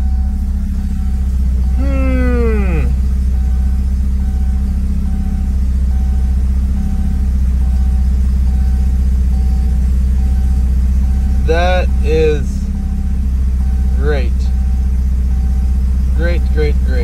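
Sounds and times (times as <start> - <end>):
car engine idling: 0.0 - 17.0
warning buzzer beeping: 0.0 - 17.0.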